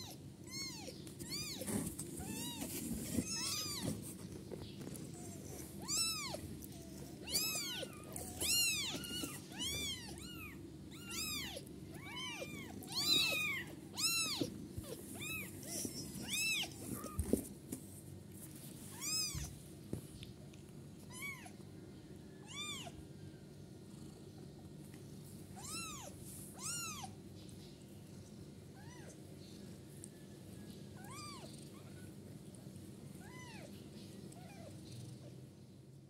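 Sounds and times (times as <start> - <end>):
kittens mewing: 5.0 - 17.4.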